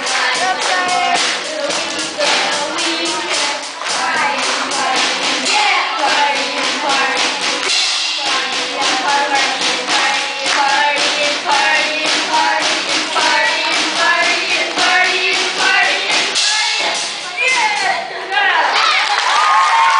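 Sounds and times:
steady drum beat: 0.0s - 18.1s
boys singing pop song: 0.0s - 19.0s.

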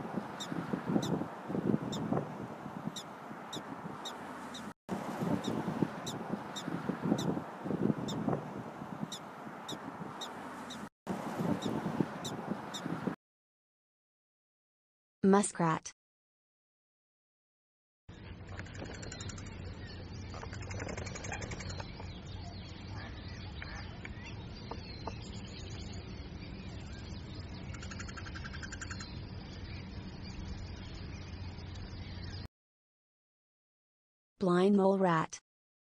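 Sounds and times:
prairie dog barking chirps: 18.4s - 25.2s, 27.7s - 29.2s.

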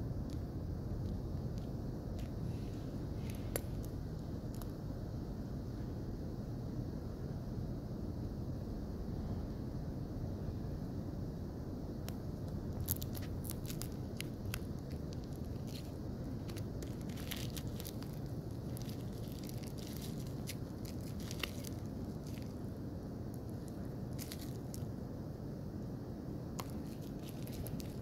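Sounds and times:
low background rumble: 0.0s - 28.0s
plastic wrap crinkling and tearing: 12.7s - 22.6s, 23.4s - 24.8s, 26.6s - 28.0s.

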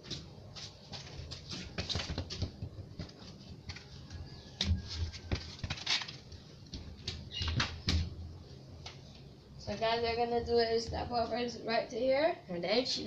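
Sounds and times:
footsteps on concrete floor: 0.0s - 8.1s.

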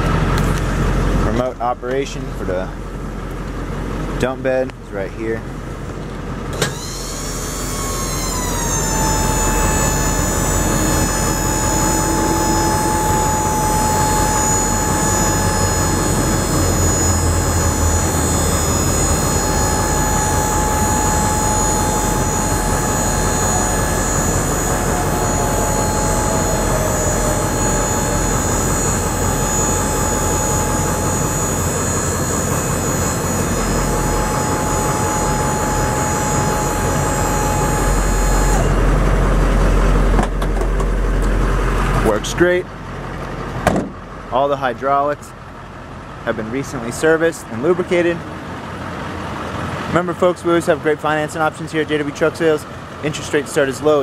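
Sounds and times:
hydraulic pump whining: 5.4s - 42.6s.

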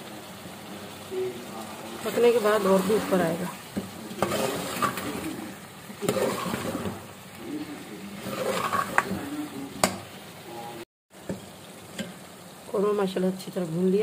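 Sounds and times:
food sizzling: 0.0s - 14.0s
spoon stirring and scraping pot: 2.1s - 7.2s, 8.2s - 10.1s.

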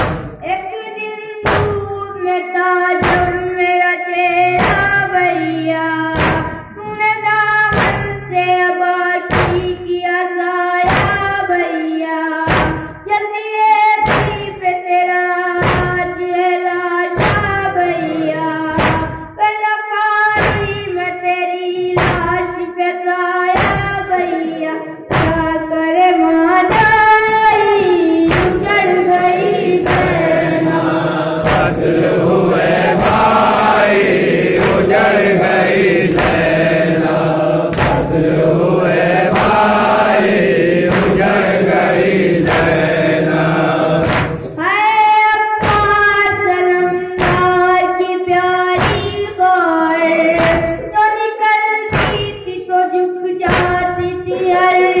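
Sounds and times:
rhythmic chest-beating: 0.0s - 0.8s, 1.4s - 55.0s
high lead voice singing lament: 2.6s - 12.8s, 14.5s - 19.7s, 23.2s - 51.2s
men chanting along: 17.4s - 19.2s, 27.4s - 44.6s.

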